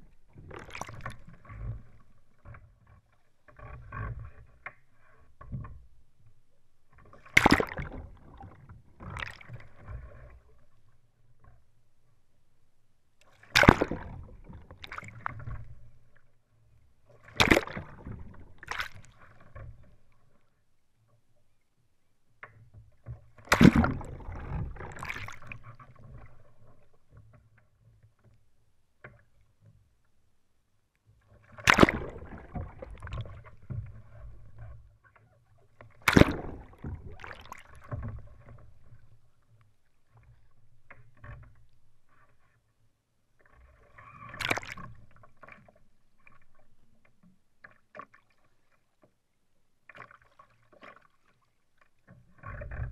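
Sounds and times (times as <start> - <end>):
loud water splashes: 7.4 - 8.0, 13.5 - 14.1, 17.3 - 18.0, 23.5 - 25.4, 31.6 - 33.1, 36.0 - 37.7
water washing and dripping: 31.6 - 33.3.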